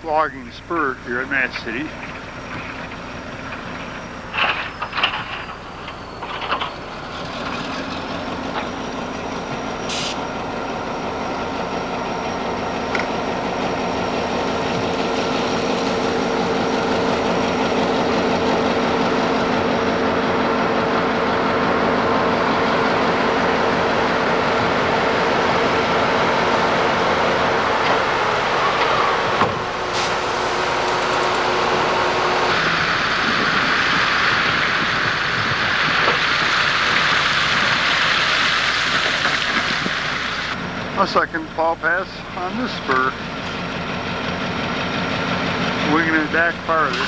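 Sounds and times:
diesel locomotive engines droning: 0.0 - 47.0
rush of snow thrown off: 29.9 - 30.6.

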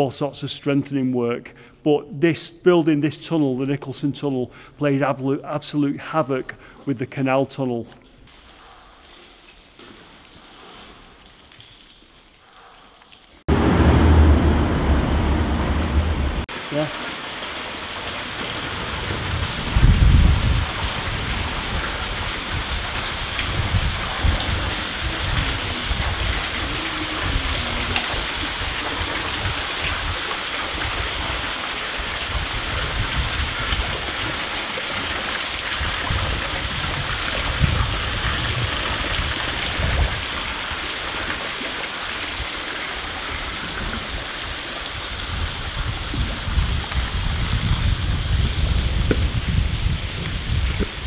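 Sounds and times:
water dripping in tunnel: 8.0 - 14.2, 15.0 - 51.0
low thumps: 13.5 - 16.5.

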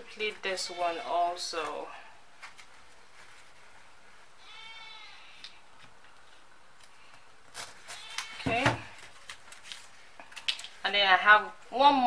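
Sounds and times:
faint bleat-like animal call: 4.4 - 5.4, 7.9 - 8.8.

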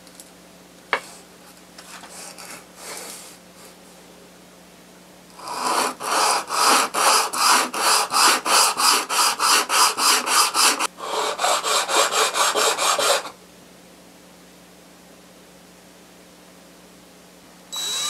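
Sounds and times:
plane scraping on sandpaper: 5.4 - 13.3.

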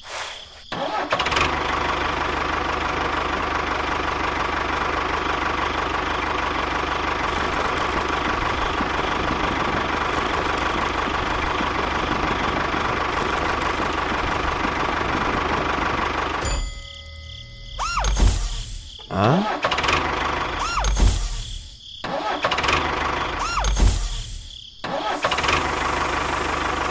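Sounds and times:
small motor rattling buzz: 7.2 - 15.4.

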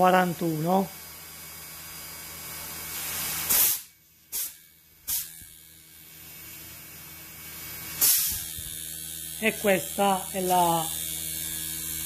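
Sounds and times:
low steady compressor hum: 0.0 - 12.0
compressed air hissing: 2.6 - 5.4, 7.8 - 8.7.

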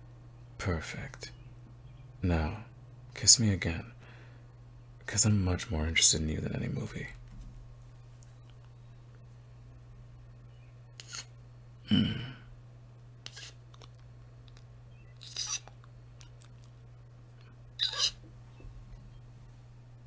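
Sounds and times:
low electrical hum: 0.0 - 20.0
soft kissing sounds: 13.3 - 16.7, 17.8 - 18.2.

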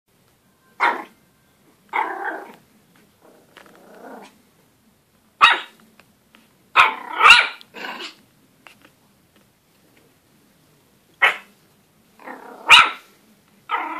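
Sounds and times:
puppy barking: 0.8 - 1.2, 1.9 - 2.6, 5.4 - 5.8, 6.8 - 8.2, 11.2 - 11.5, 12.2 - 13.0, 13.7 - 13.9
puppy growling: 1.9 - 2.6, 3.2 - 4.4, 6.8 - 8.2, 12.2 - 12.8, 13.7 - 13.9.

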